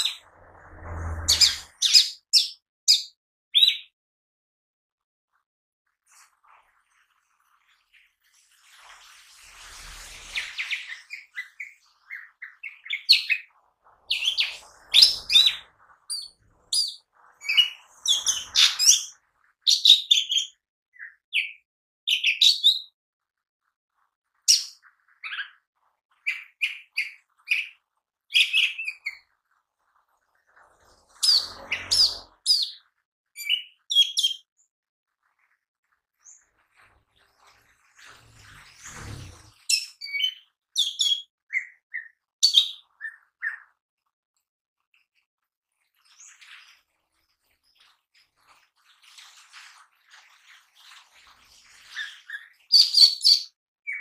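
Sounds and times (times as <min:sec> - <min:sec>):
bird singing chirps and whistles: 0:00.9 - 0:03.9, 0:10.4 - 0:13.5, 0:14.1 - 0:23.0, 0:26.3 - 0:29.2, 0:31.2 - 0:32.8, 0:33.4 - 0:34.5, 0:39.7 - 0:43.7, 0:51.9 - 0:54.0.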